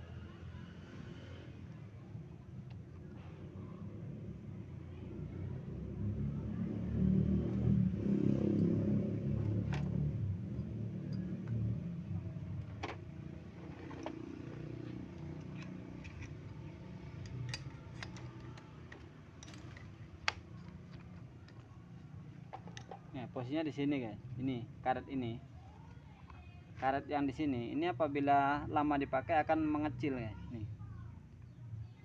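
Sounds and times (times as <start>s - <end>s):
hands clicking and tapping parts: 17.2s - 21.7s.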